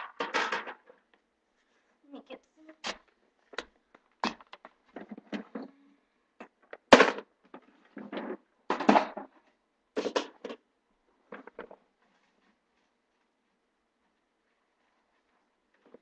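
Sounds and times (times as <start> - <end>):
rummaging clatters and rustles: 4.4 - 5.8.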